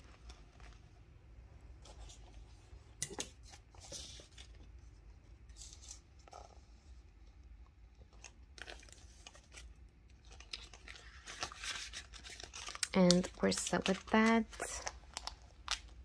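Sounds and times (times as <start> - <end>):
paper banknotes rustling: 8.6 - 16.0.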